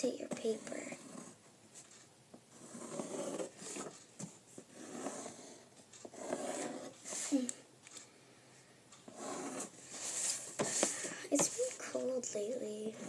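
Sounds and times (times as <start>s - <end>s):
marker scratching on paper: 0.4s - 1.4s, 2.5s - 4.0s, 4.6s - 7.3s, 9.1s - 12.1s
child breathing: 10.0s - 11.4s.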